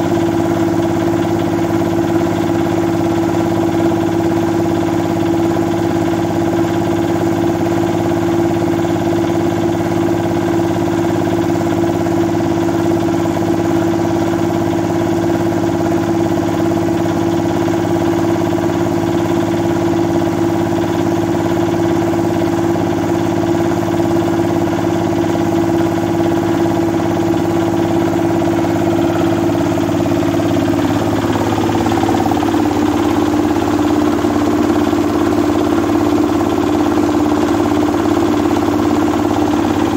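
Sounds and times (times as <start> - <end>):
diesel engine humming: 24.4 - 39.9.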